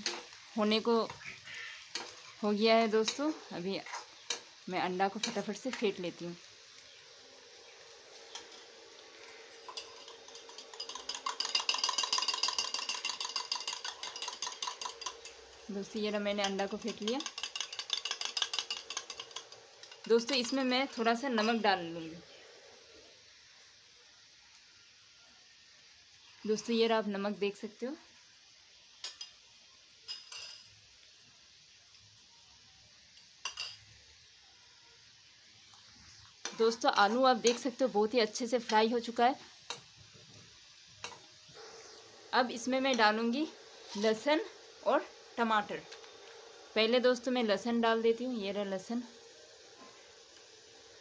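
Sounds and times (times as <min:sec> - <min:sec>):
kitchen utensils clinking: 0:09.6 - 0:21.8, 0:30.0 - 0:30.7, 0:33.4 - 0:33.9, 0:36.4 - 0:37.8
spoon clinking on steel bowl: 0:09.7 - 0:15.3.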